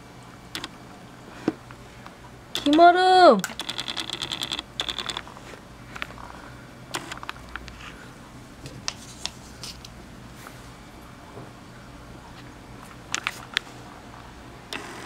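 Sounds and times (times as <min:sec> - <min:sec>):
fast clicking rattle: 0:03.5 - 0:05.2.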